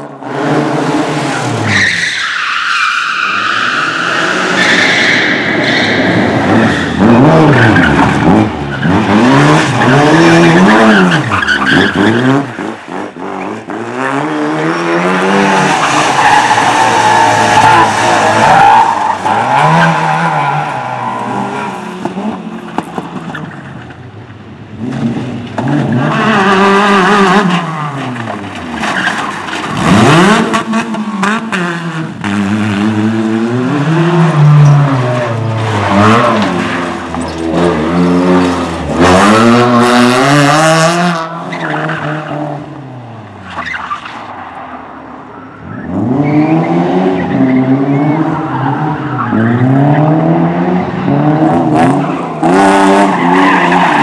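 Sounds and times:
race car engines revving: 0.0s - 54.0s
tyres skidding on gravel: 24.8s - 31.6s.

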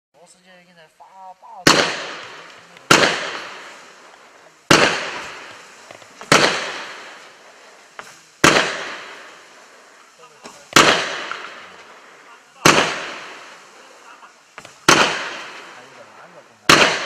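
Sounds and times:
firework shots with hiss: 1.5s - 17.0s.

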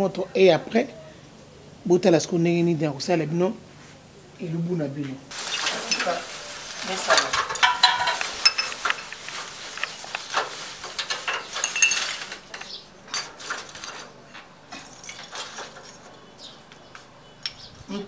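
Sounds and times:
charcoal lumps clacking on metal: 5.3s - 16.3s.

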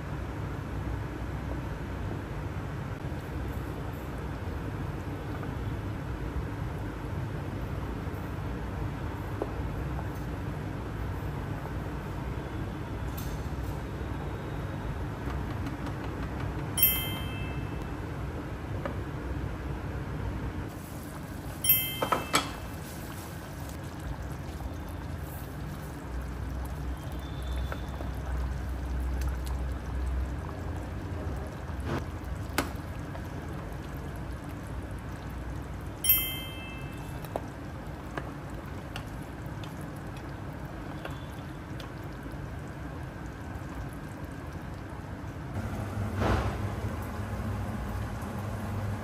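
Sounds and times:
gravy bubbling in pan: 20.7s - 21.6s, 22.6s - 36.0s, 37.1s - 49.0s.

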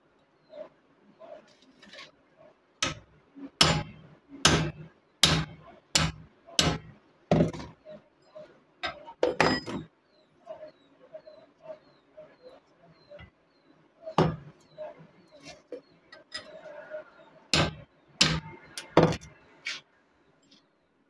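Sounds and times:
hammer striking steel punch: 3.6s - 6.9s, 17.6s - 19.2s.

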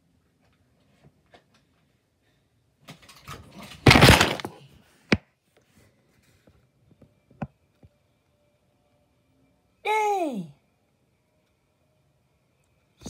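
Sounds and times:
crash of object knocked over: 3.7s - 4.6s.

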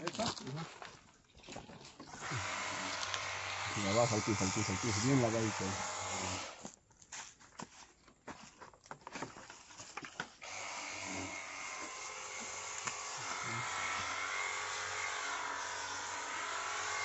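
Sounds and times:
electric pump whine: 2.0s - 6.7s, 10.4s - 17.0s
pressure washer water jet hissing: 2.1s - 6.6s.

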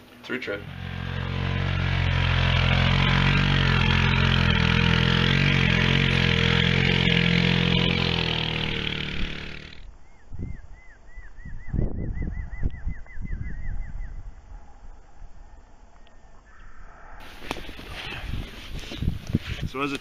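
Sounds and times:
quad bike engine running: 0.6s - 9.9s
bird chirping: 9.8s - 14.3s.

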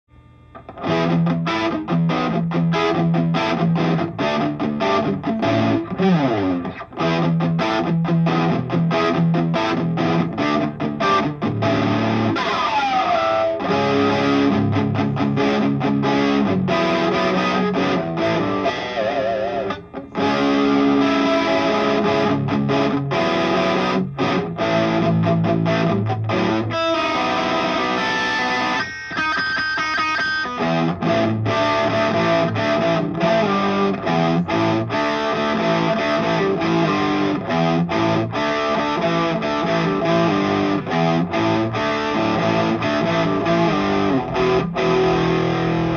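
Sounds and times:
distorted electric guitar riff: 0.1s - 45.9s.

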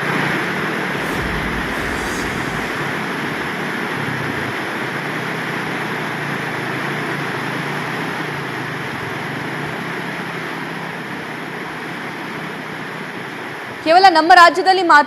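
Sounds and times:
faint low hum: 1.0s - 4.4s.

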